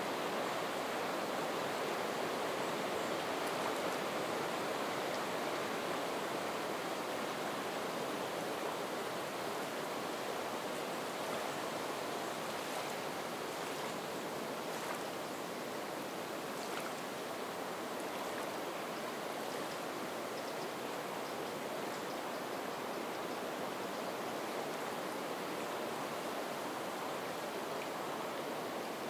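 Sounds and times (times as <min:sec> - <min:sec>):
wind through reeds: 0:09.4 - 0:20.9
water lapping at shore: 0:11.2 - 0:19.8.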